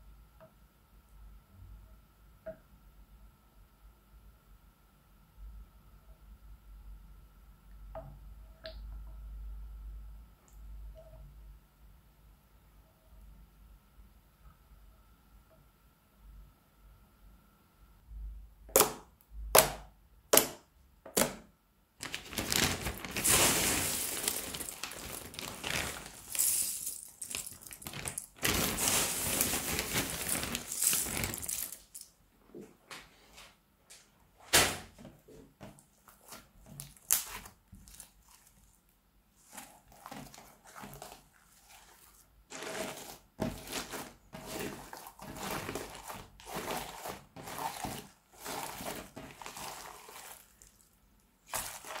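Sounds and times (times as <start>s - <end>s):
crunchy slime crackling: 22.0s - 31.9s, 36.1s - 38.8s, 39.4s - 52.0s.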